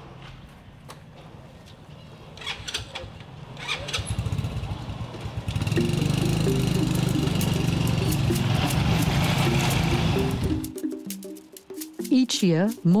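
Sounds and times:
motorcycle engine starting: 0:02.4 - 0:10.8
background music with steady beat: 0:05.6 - 0:13.0.

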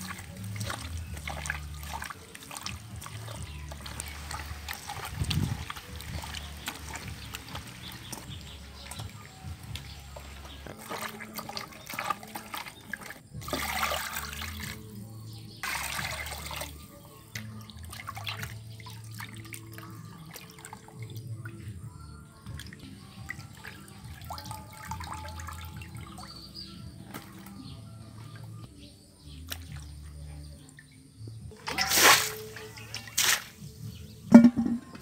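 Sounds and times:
water gushing: 0:00.0 - 0:14.8, 0:15.6 - 0:16.8, 0:31.6 - 0:33.6
water sloshing in metal bowl: 0:00.0 - 0:35.0.

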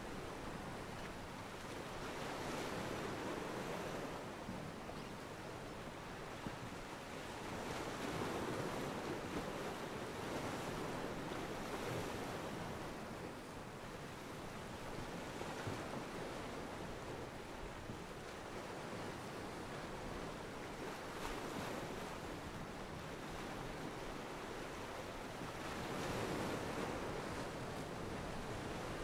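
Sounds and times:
ocean waves washing against pier: 0:18.8 - 0:29.0.

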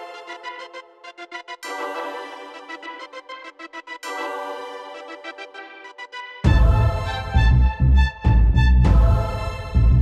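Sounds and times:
music with pulsing bass: 0:06.5 - 0:10.0.

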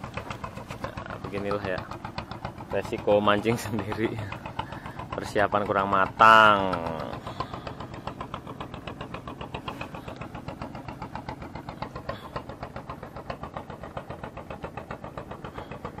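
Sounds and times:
engine idling with chugging beat: 0:00.0 - 0:16.0.

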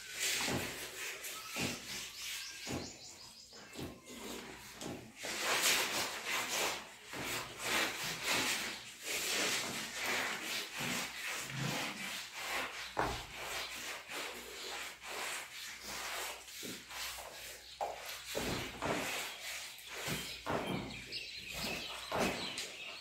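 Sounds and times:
fingers scraping steel plate: 0:00.0 - 0:23.0.

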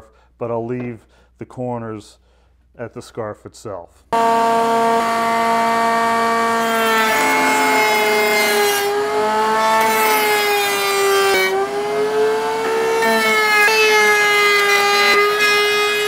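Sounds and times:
router whining cutting wood: 0:04.2 - 0:16.0.

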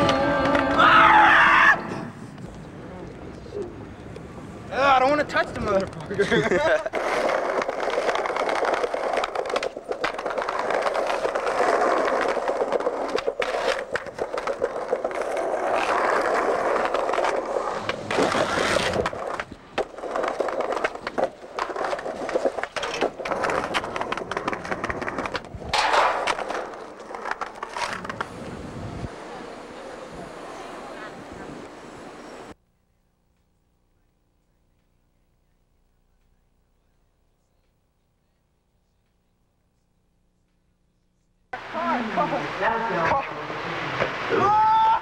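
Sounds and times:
skateboard wheels rolling on concrete: 0:00.0 - 0:32.6, 0:41.6 - 0:45.0
skateboard clacking on ground: 0:05.3 - 0:28.4.

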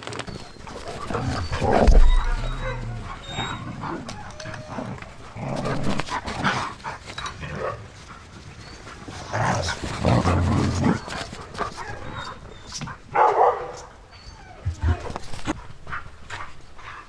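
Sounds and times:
dogs barking and calling: 0:00.3 - 0:05.1, 0:10.7 - 0:15.2.

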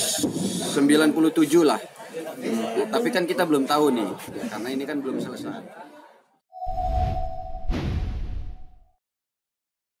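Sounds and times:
steady held tone: 0:06.5 - 0:08.9
low hit: 0:06.6 - 0:08.9.

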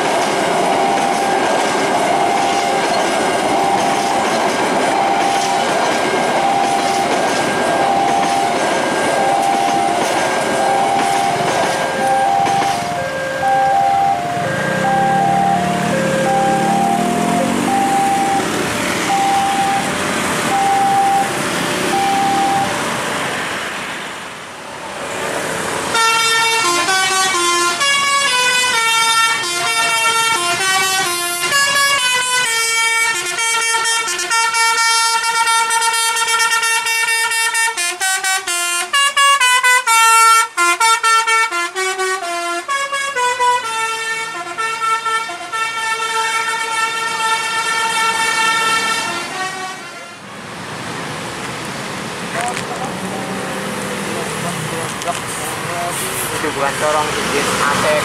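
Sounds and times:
rushing noise: 0:00.0 - 0:32.4, 0:47.4 - 0:58.0
short beep: 0:10.7 - 0:18.5, 0:19.1 - 0:19.9, 0:20.5 - 0:21.3, 0:21.9 - 0:22.8
bus musical air horn tune: 0:12.0 - 0:22.8, 0:25.9 - 0:50.3.

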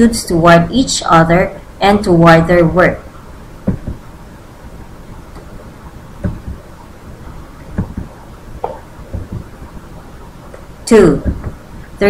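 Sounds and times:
low steady rumble: 0:00.0 - 0:12.0
soft thumps: 0:03.6 - 0:04.1, 0:06.2 - 0:06.8, 0:07.6 - 0:11.7.

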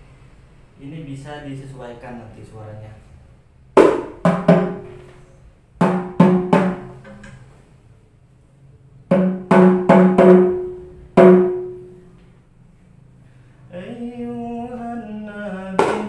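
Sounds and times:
bass drum struck with mallet: 0:03.8 - 0:05.0, 0:05.8 - 0:06.9, 0:09.1 - 0:11.9
small drum struck by hand: 0:03.8 - 0:05.1, 0:05.8 - 0:07.2, 0:09.1 - 0:12.0, 0:15.8 - 0:16.0.

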